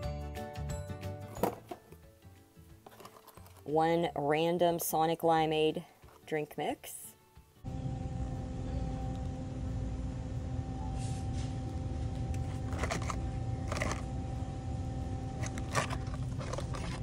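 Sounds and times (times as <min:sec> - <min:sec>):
phone handling rustles: 0:02.9 - 0:03.7, 0:12.4 - 0:14.1, 0:15.4 - 0:17.0
store background rumble and hum: 0:07.6 - 0:17.0.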